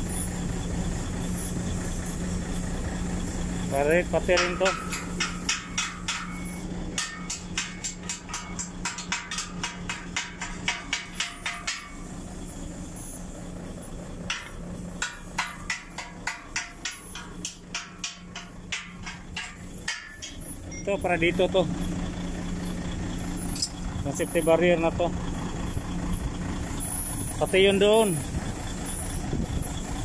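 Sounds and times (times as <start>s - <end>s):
low hum: 0.0s - 27.5s
hammer tapping metal: 3.8s - 12.1s, 14.2s - 21.6s.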